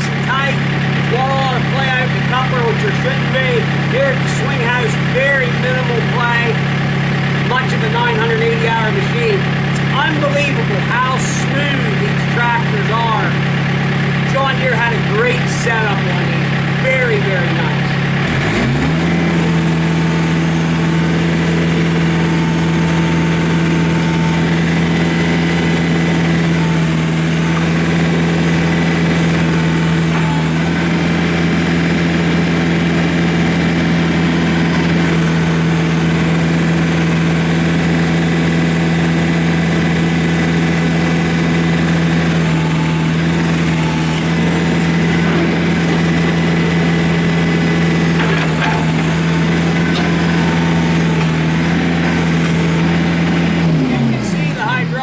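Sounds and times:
diesel engine running at raised revs: 0:00.0 - 0:55.0.

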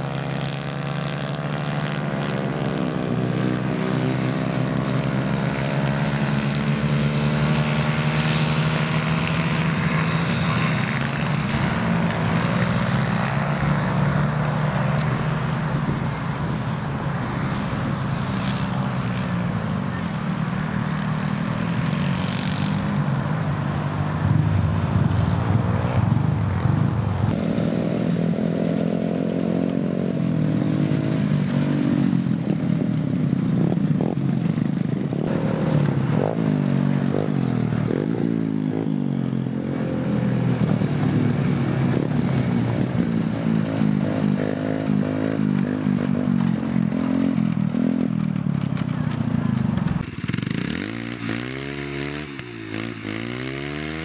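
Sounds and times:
racing kart engines: 0:00.0 - 0:54.0.

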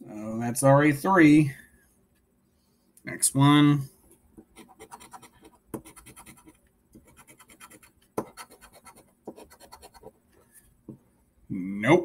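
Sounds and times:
lottery ticket being scratched: 0:04.6 - 0:10.1.

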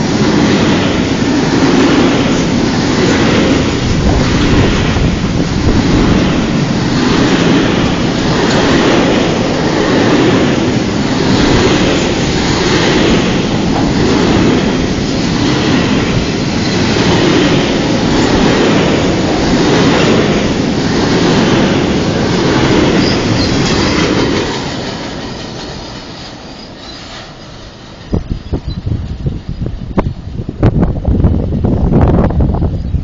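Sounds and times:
steel train wheels rumbling on rails: 0:00.0 - 0:33.0.

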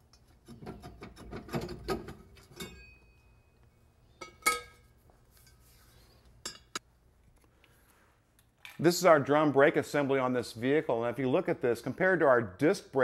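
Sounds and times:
ringing metallic clank: 0:02.5 - 0:03.4.

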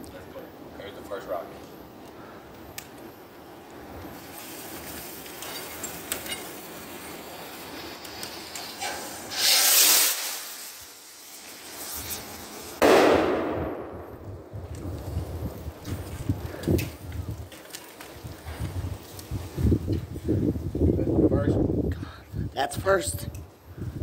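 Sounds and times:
firework rocket whoosh: 0:04.1 - 0:15.4
firework bang: 0:08.8 - 0:11.0, 0:12.8 - 0:14.5.

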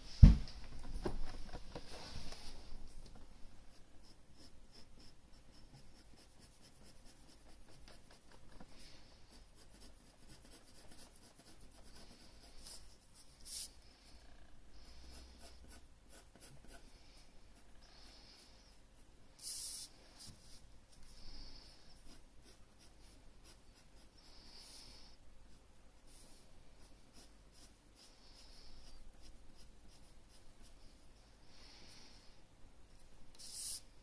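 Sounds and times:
pencil scratching on paper: 0:03.6 - 0:13.8, 0:14.7 - 0:24.8, 0:25.5 - 0:30.9, 0:33.4 - 0:33.9.

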